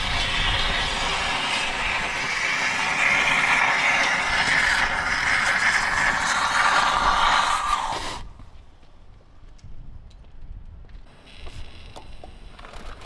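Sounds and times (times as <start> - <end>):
cutting rod hissing roar: 0.0 - 8.3.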